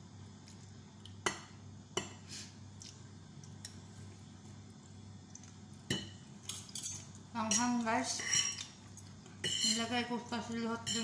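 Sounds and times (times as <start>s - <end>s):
forks clinking on a plate: 6.0s - 8.7s, 9.4s - 9.9s, 10.8s - 11.0s.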